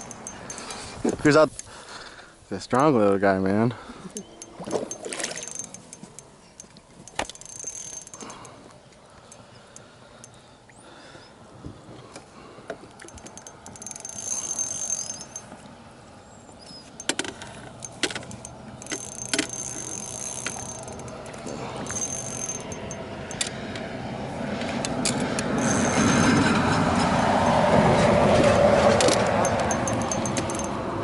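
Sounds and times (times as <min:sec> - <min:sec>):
fishing reel gears whirring: 0:00.0 - 0:00.9, 0:04.1 - 0:10.4, 0:13.0 - 0:15.6, 0:16.8 - 0:23.7, 0:25.0 - 0:27.7, 0:29.0 - 0:30.8
sharp clicks and knocks: 0:04.4 - 0:08.4, 0:17.0 - 0:23.8, 0:24.6 - 0:30.8.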